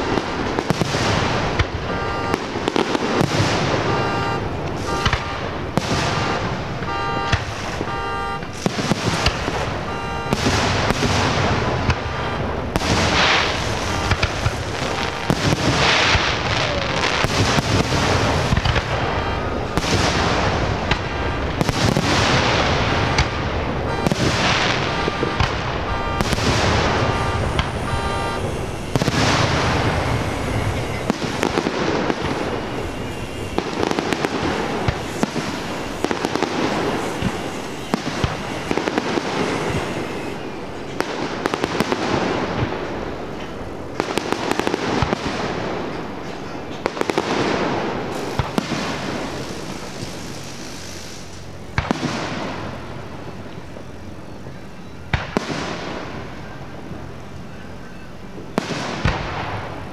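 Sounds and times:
fireworks bangs and crackling: 0:00.0 - 0:59.9
repeating beep: 0:01.6 - 0:20.0, 0:23.0 - 0:40.6.

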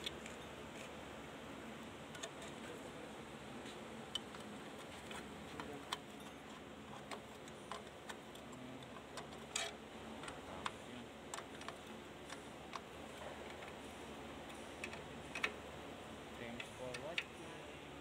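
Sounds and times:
clicks of hand tools and metal parts: 0:04.1 - 0:13.8, 0:14.5 - 0:15.6, 0:16.5 - 0:17.4.

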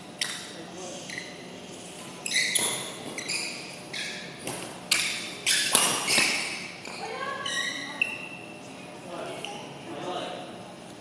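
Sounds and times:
shoes squeaking on court floor: 0:00.1 - 0:08.6
racket hitting shuttlecock: 0:04.4 - 0:06.4.

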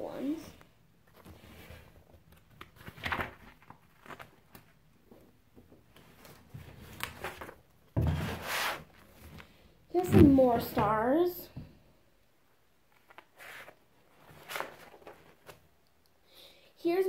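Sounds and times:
paper pages rustling: 0:01.1 - 0:05.3, 0:06.0 - 0:09.5, 0:12.9 - 0:15.7.

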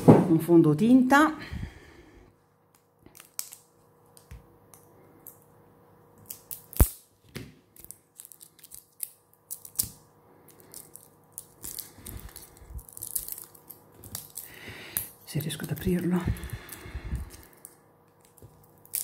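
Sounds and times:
plastic wrap crinkling: 0:06.2 - 0:19.0.

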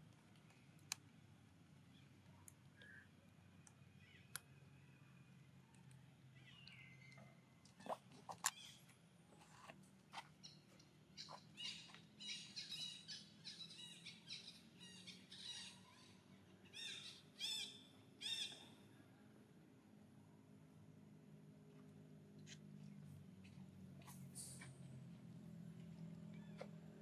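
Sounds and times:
high-pitched chirping calls: 0:11.2 - 0:18.7.

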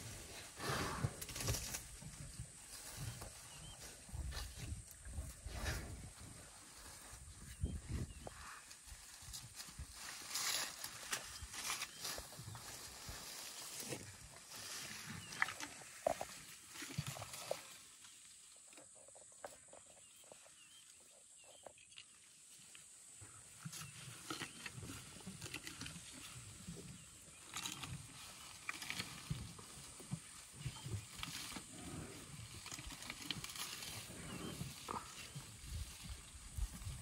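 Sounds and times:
leafy branches rustling: 0:08.4 - 0:15.2.

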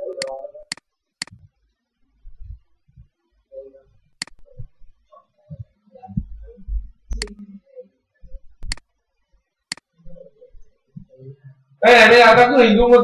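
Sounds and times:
faint muffled sounds: 0:00.0 - 0:13.0
mouse buttons clicking: 0:00.1 - 0:01.4, 0:04.2 - 0:04.8, 0:07.1 - 0:07.4, 0:08.3 - 0:08.8, 0:09.7 - 0:10.7.

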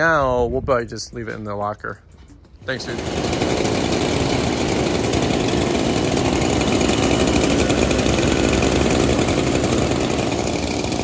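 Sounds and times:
small engine running: 0:02.6 - 0:11.0.

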